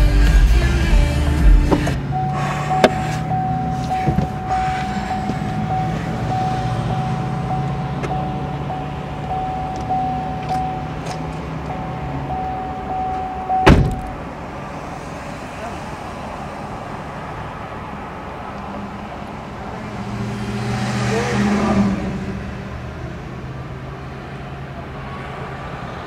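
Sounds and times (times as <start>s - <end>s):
car engine idling: 0.0s - 19.9s
steady electronic tone: 2.0s - 11.0s.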